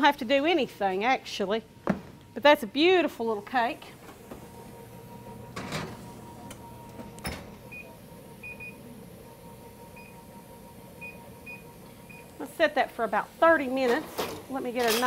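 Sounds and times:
oven door shutting: 3.9 - 7.8.

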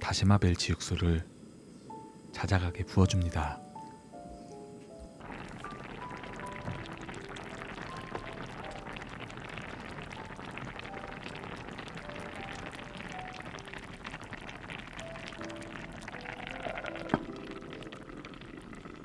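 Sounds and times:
background music: 1.8 - 18.3
broth boiling in a pot: 5.2 - 19.0.

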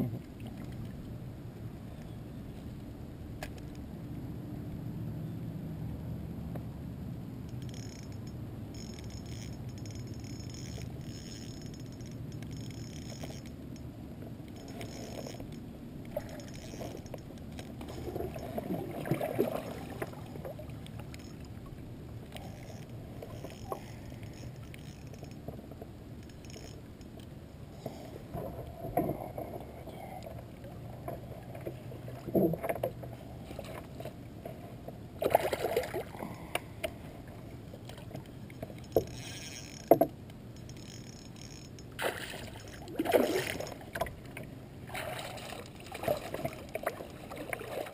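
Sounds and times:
low background rumble: 0.0 - 47.9
knocks and rattles against kayak hull: 39.8 - 40.2.

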